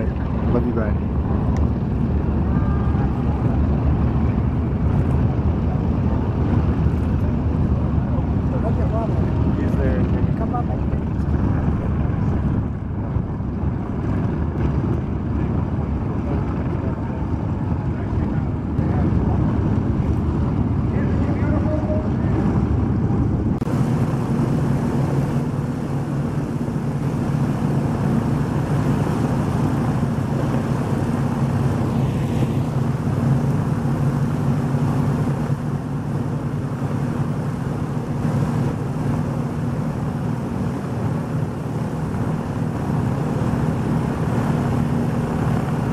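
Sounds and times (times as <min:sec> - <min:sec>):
aircraft piston engines running: 0:00.0 - 0:45.9.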